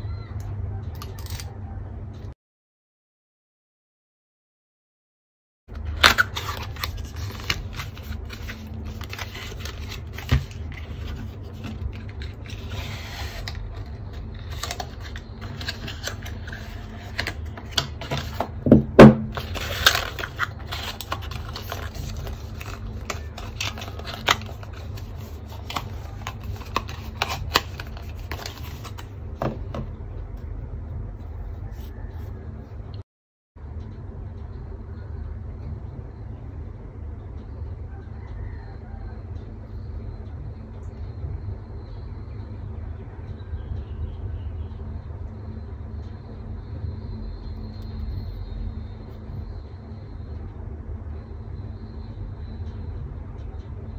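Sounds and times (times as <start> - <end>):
low hum: 33.6 - 53.9.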